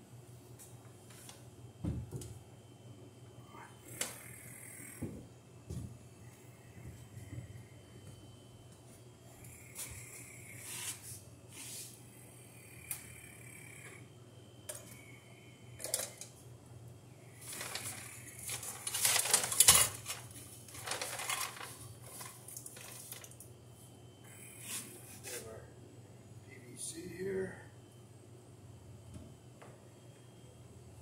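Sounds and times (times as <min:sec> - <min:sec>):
metal parts clinking and scraping: 0:18.5 - 0:23.3.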